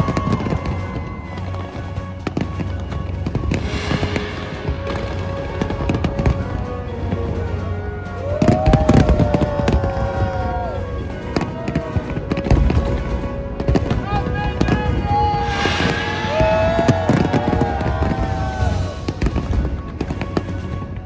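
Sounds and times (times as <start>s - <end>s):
fireworks bangs and crackles: 0.0s - 21.0s
low rumble: 3.3s - 7.7s, 15.2s - 20.0s.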